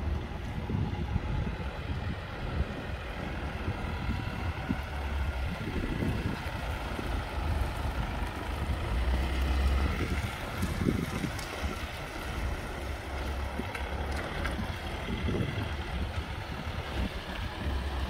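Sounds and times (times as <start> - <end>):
diesel pickup engine running: 0.0 - 18.0
wind rumbling on microphone: 0.0 - 18.0.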